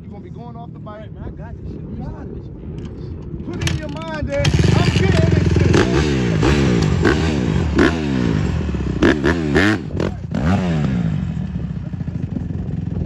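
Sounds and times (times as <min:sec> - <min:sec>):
dirt bike engine revving: 0:04.4 - 0:13.0.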